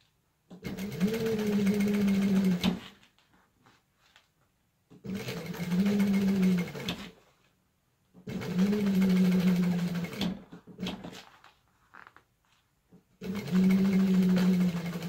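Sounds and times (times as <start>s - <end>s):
sewing machine stitching: 0.5s - 3.0s, 5.0s - 7.2s, 8.2s - 11.2s, 13.2s - 15.0s.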